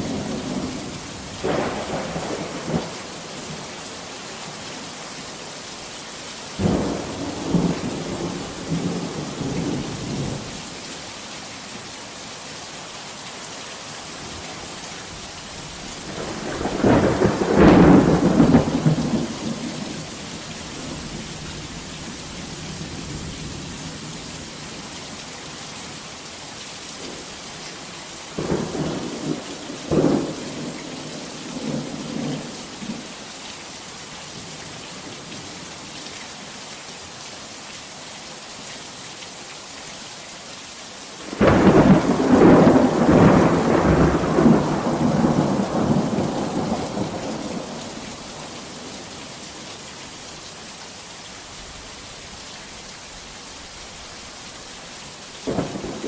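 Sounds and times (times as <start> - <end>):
heavy rain: 0.0 - 56.0
thunder rumbling and cracking: 16.0 - 20.1, 41.2 - 48.8, 55.4 - 56.0.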